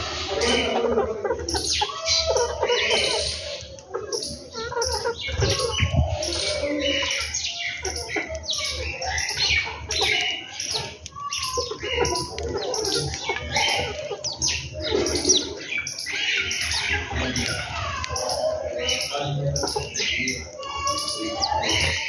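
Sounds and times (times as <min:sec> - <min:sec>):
chickens clucking: 0:00.0 - 0:22.0
sparrows chirping: 0:00.0 - 0:22.0.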